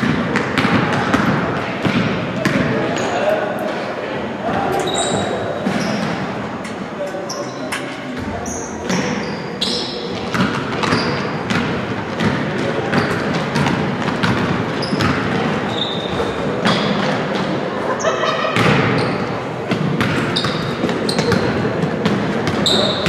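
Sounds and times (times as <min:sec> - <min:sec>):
crowd voices: 0:00.0 - 0:23.0
sneaker squeaks: 0:04.5 - 0:06.3, 0:07.1 - 0:11.6, 0:12.9 - 0:17.4, 0:18.0 - 0:23.0
basketball bouncing on wooden floor: 0:10.2 - 0:15.4.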